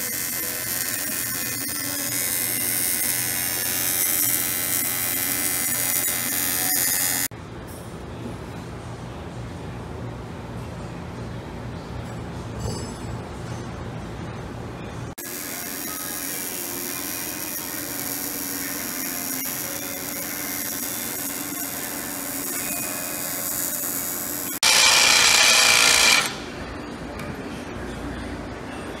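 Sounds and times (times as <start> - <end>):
welding arc buzzing and hissing: 0.0 - 7.3, 15.2 - 26.5
drill boring into metal tube: 23.2 - 26.4.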